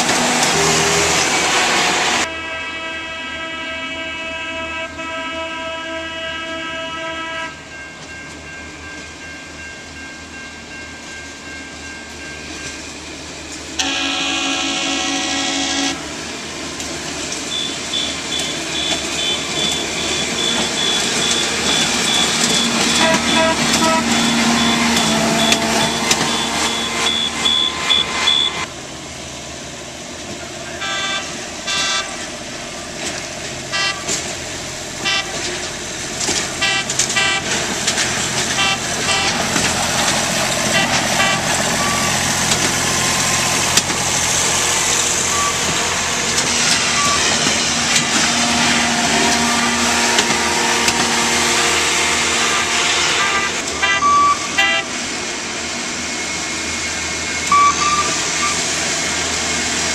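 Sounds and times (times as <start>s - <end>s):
track machine horn blasts: 0.5s - 7.6s, 13.8s - 16.0s, 17.5s - 28.7s, 30.8s - 32.2s, 33.7s - 34.2s, 35.0s - 35.5s, 36.6s - 37.6s, 38.6s - 39.4s, 40.7s - 42.2s, 48.3s - 54.9s, 57.5s - 58.6s
high-pitched steady tone: 17.5s - 28.7s, 57.4s - 58.6s.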